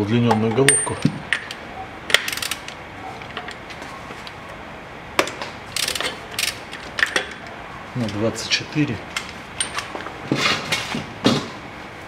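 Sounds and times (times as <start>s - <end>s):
metal socket clinking: 0.3s - 3.6s
rapid ratchet clicking: 2.1s - 2.7s, 5.7s - 7.3s.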